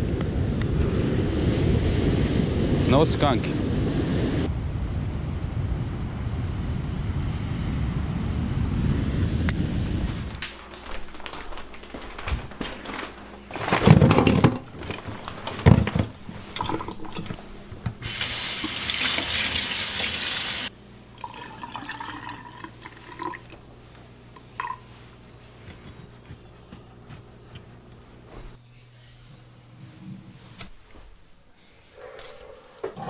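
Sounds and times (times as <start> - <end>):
knocks and clatter in sink: 13.5 - 18.0
faucet running into steel sink: 18.0 - 20.7.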